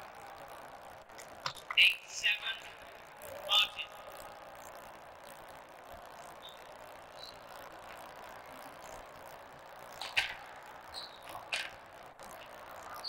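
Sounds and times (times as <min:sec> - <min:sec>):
steady hiss: 0:00.0 - 0:13.0
shoe squeaks: 0:10.9 - 0:11.5.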